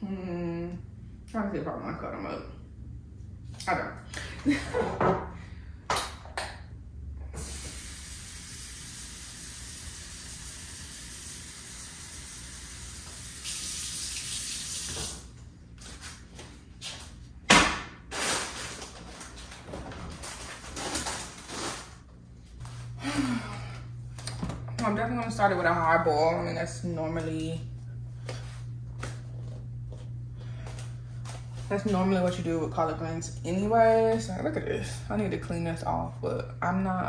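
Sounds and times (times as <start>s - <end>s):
faucet running: 7.4s - 15.3s.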